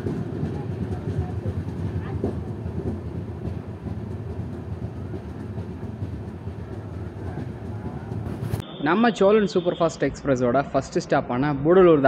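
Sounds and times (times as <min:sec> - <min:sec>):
train wheels rumbling on rails: 0:00.0 - 0:08.6.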